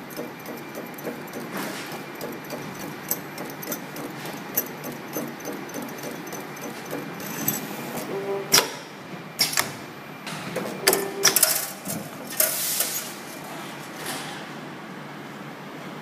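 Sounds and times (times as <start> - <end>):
machine metallic clacks: 0.0 - 8.8.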